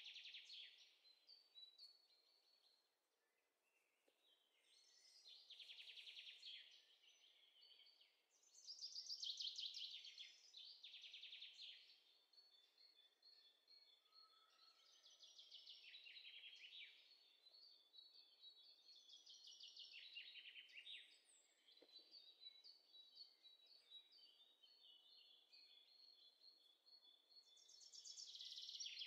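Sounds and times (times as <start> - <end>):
bird song trills: 0.0 - 29.0.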